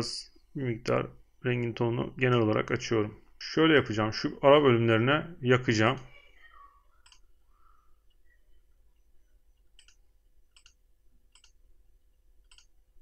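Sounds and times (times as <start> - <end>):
faint mouse clicks: 7.0 - 7.3, 9.7 - 11.6, 12.4 - 12.8.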